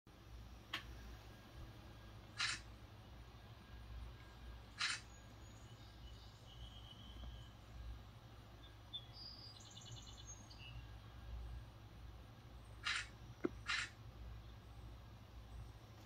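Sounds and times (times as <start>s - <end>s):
faint bird chirps: 1.0s - 11.6s
sharp click: 2.4s - 2.6s, 4.8s - 5.1s, 12.8s - 14.0s
short hissing bursts: 2.4s - 2.6s, 4.8s - 5.1s, 12.8s - 13.1s, 13.7s - 13.9s.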